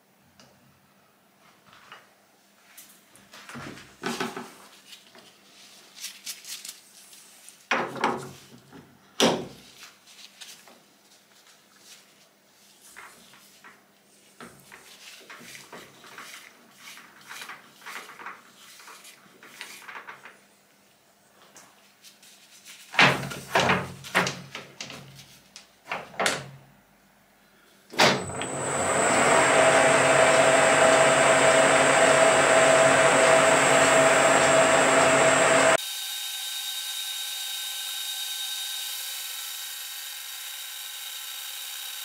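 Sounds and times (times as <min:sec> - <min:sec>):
lathe motor humming and whining: 0:28.2 - 0:42.0.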